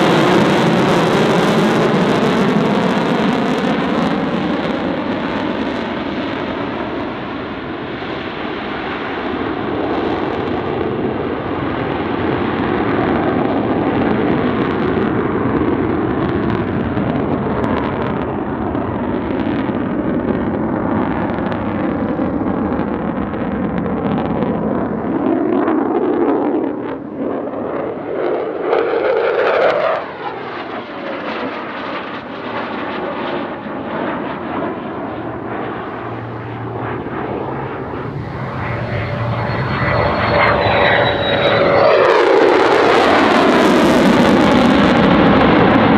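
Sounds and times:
jet rumble in flight: 0:00.0 - 0:45.9
high whine: 0:33.4 - 0:43.4.

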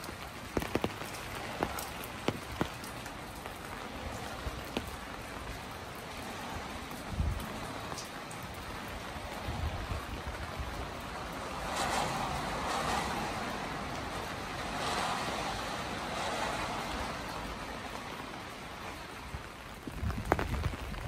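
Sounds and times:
rain hissing on wet street: 0:00.0 - 0:21.0.

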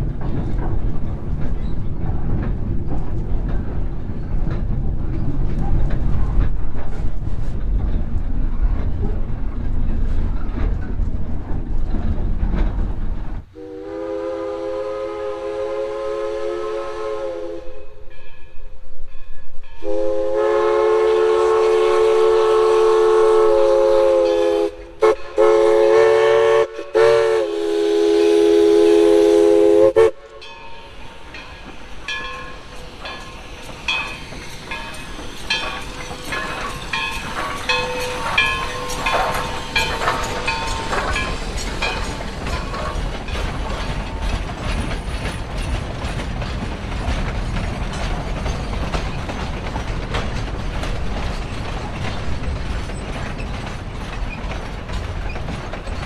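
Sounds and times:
locomotive running with clicks: 0:00.0 - 0:13.5, 0:30.2 - 0:56.0
train coach rumbling on track: 0:00.0 - 0:56.0
steam whistle blasts: 0:13.6 - 0:18.0, 0:19.8 - 0:30.5.

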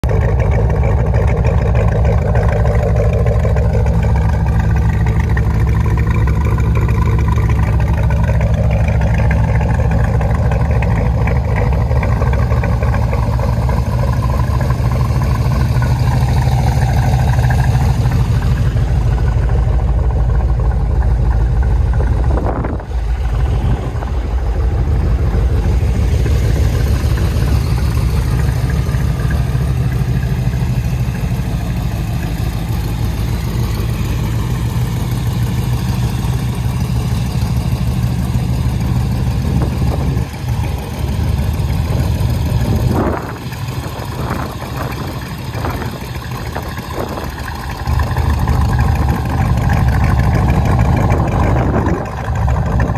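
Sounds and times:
car engine idling: 0:00.0 - 0:52.9.

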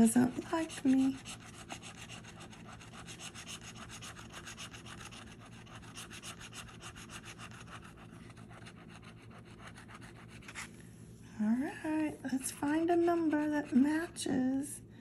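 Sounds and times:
scraping lottery ticket: 0:00.0 - 0:10.8.

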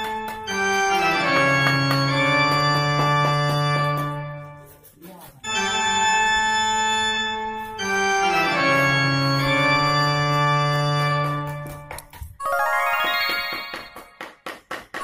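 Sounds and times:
organ-style keyboard chords: 0:00.1 - 0:04.3, 0:05.5 - 0:11.8.

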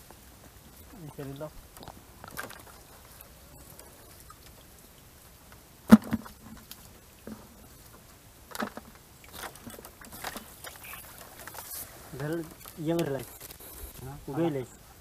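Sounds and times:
fishing net rustling: 0:00.6 - 0:14.6
knocks on plastic bucket: 0:05.9 - 0:06.4.

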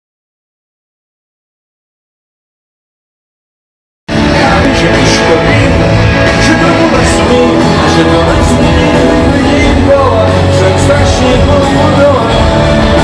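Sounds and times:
electric guitars: 0:04.1 - 0:13.0
live rock band playing: 0:04.1 - 0:13.0
person singing: 0:04.1 - 0:13.0.

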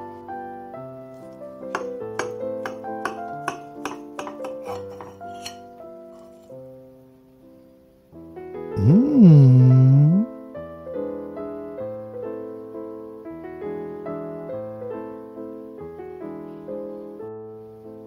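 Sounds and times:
gentle piano piece: 0:00.0 - 0:18.0
held low bass notes: 0:08.8 - 0:10.3.

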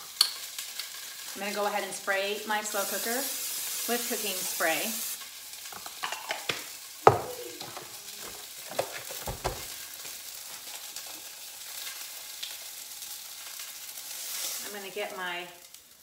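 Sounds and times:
steak sizzling: 0:00.0 - 0:16.0
crock knocking and clunking: 0:07.1 - 0:09.7
low thumps: 0:07.1 - 0:09.7.

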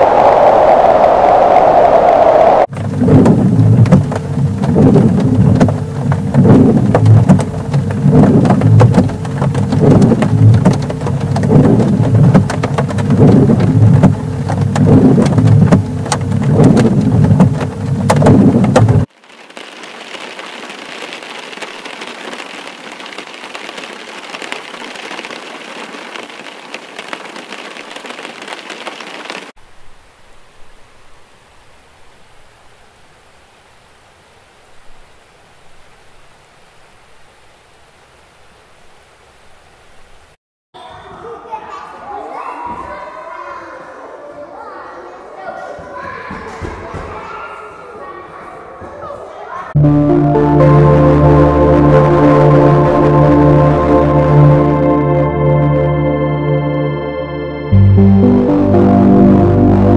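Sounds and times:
deep low rumble: 0:00.0 - 0:19.1
heavy rain pelting: 0:00.0 - 0:40.4, 0:49.8 - 0:59.9
soft rain-like hiss: 0:19.0 - 0:40.4.

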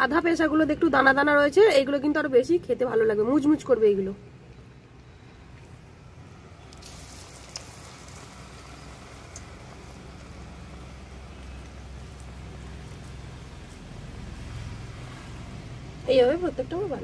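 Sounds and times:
fritters sizzling in oil: 0:05.0 - 0:17.0.

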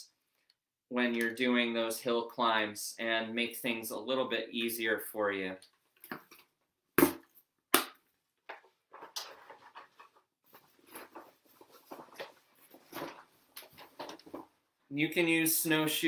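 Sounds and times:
rustling and light knocks: 0:08.5 - 0:14.6.

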